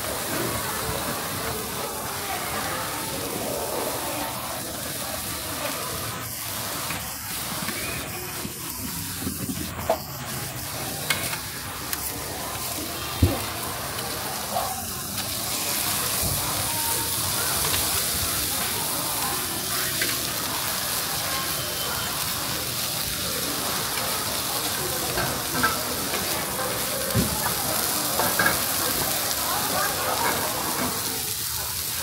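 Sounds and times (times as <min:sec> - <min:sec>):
food sizzling on a grill plate: 0:00.0 - 0:32.0.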